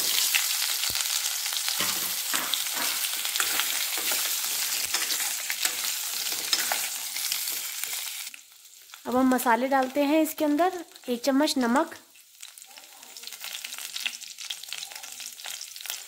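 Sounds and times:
potatoes sizzling in oil: 0:00.0 - 0:16.0
ladle scraping and knocking a pan: 0:01.8 - 0:07.7.

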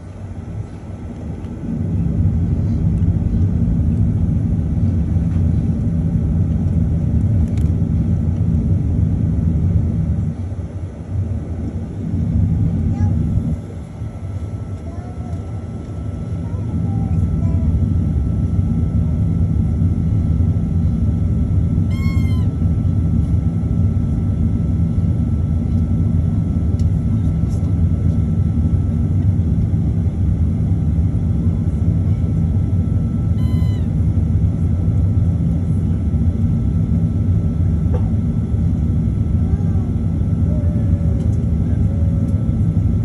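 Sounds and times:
faint steady whine: 0:00.0 - 0:43.0
jet engines idling rumble: 0:00.0 - 0:43.0.

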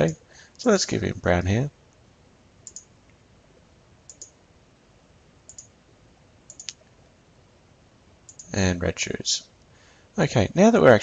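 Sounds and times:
computer mouse clicking: 0:02.6 - 0:02.9, 0:04.1 - 0:04.4, 0:05.5 - 0:05.7, 0:06.5 - 0:06.8, 0:08.3 - 0:08.5.

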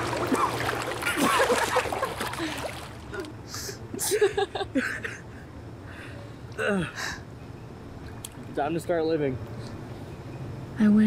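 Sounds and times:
water splashing in pool: 0:00.0 - 0:03.3
people laughing and giggling: 0:01.1 - 0:02.6, 0:03.9 - 0:05.5.

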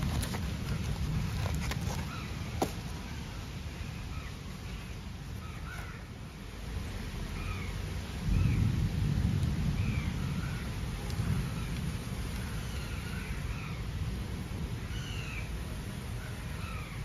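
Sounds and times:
cardboard and paper rustling: 0:00.0 - 0:03.3
steady low rumble: 0:06.4 - 0:14.9.

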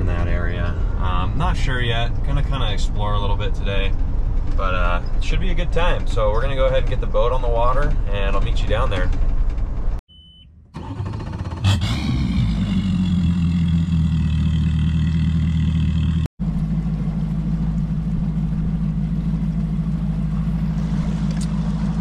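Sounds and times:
vehicle cab rumble: 0:00.0 - 0:22.0
outboard motor idling: 0:10.8 - 0:22.0.

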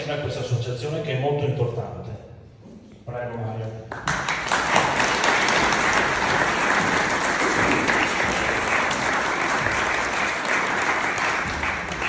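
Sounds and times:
audience applauding: 0:03.9 - 0:12.0.

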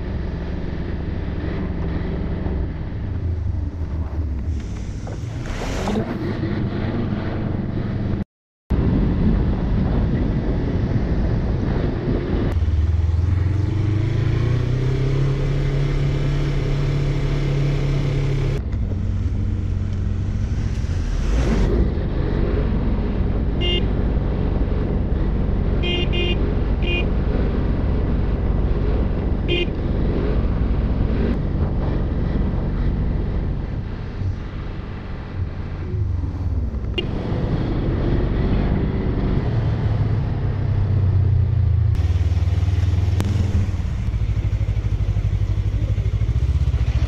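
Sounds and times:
wind noise on microphone: 0:08.7 - 0:12.6
motorcycle engine running: 0:41.7 - 0:47.0.

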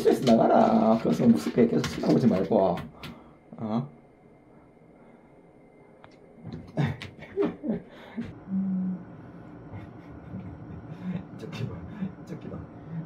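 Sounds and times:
short hum-like tone: 0:08.2 - 0:13.0.

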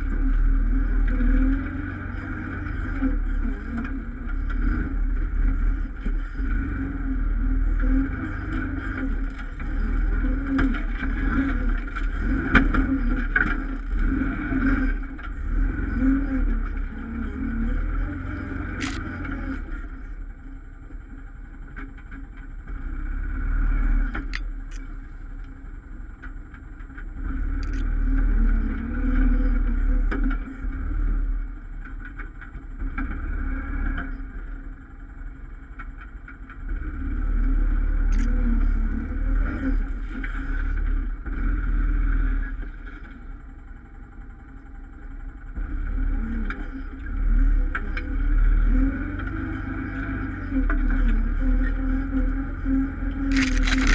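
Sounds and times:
atv engine revving: 0:00.0 - 0:19.9, 0:27.3 - 0:31.0, 0:36.8 - 0:42.6, 0:46.0 - 0:53.9
sharp clicks: 0:18.8 - 0:19.1, 0:27.6 - 0:27.9, 0:38.1 - 0:38.4, 0:53.3 - 0:53.9.

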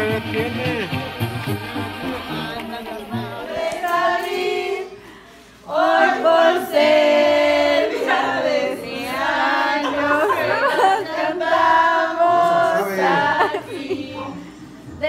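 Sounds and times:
music: 0:00.0 - 0:04.5
group of people singing: 0:01.5 - 0:15.0.

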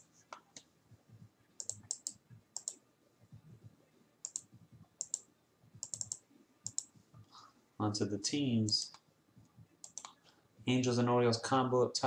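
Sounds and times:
mouse and keyboard clicks: 0:01.6 - 0:02.8, 0:04.2 - 0:06.9, 0:09.8 - 0:10.2.

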